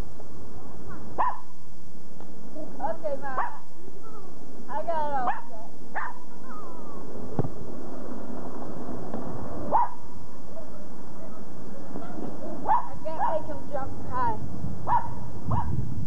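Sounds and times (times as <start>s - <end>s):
steady background hiss: 0.0s - 16.0s
small dog barking: 0.9s - 1.5s, 3.4s - 3.6s, 5.2s - 6.4s, 9.7s - 11.4s, 12.0s - 13.4s, 14.8s - 15.8s.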